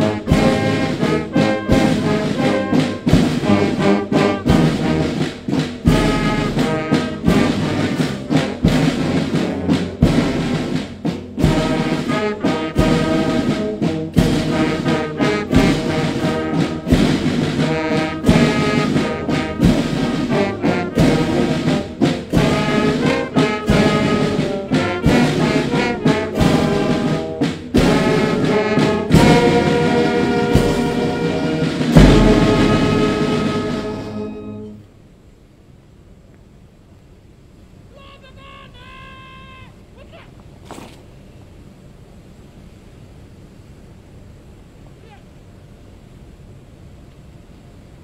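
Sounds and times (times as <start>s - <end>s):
brass band playing anthem: 0.0s - 34.9s
bass drum beat: 31.9s - 33.6s.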